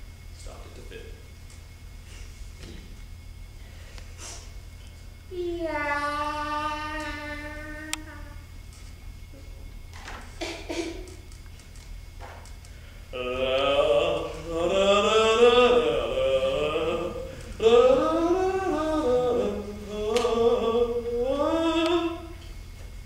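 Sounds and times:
man singing wordless tune: 13.1 - 22.4.

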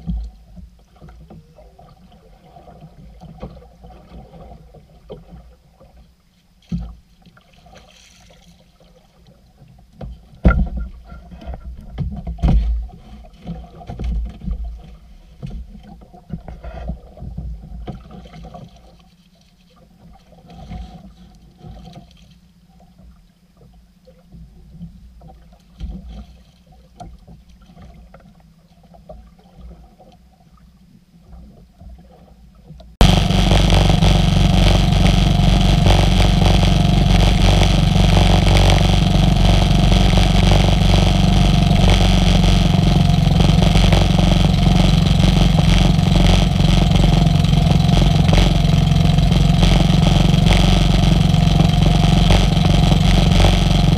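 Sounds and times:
knocks and thumps in boat: 10.0 - 18.7
boat engine at speed: 33.0 - 53.9.

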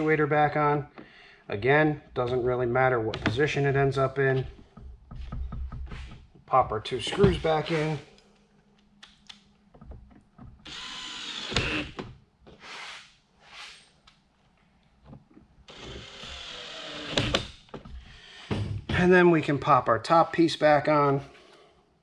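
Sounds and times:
cordless drill driving screws: 10.6 - 12.0, 15.7 - 17.6.

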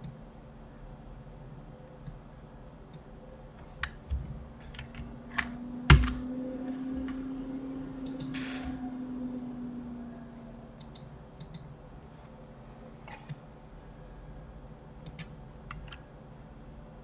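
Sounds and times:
low steady hum: 0.0 - 17.0
computer mouse clicks: 8.0 - 8.4, 10.8 - 11.7, 13.0 - 13.4, 15.0 - 16.0
keyboard clicks: 8.0 - 8.4, 10.8 - 11.7, 15.0 - 16.0.

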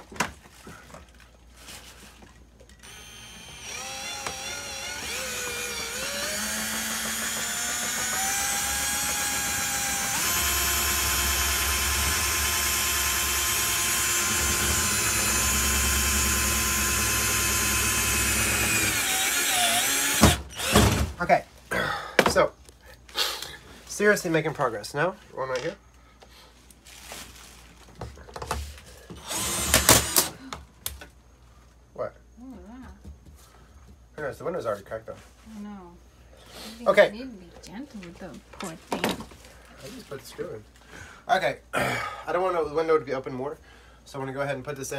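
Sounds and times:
cordless drill motor whine: 2.8 - 20.9, 29.2 - 30.4.

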